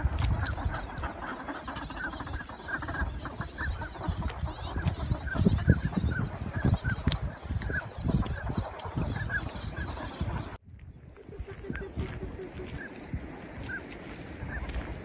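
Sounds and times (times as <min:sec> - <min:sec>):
ducks calling: 0:00.0 - 0:10.6.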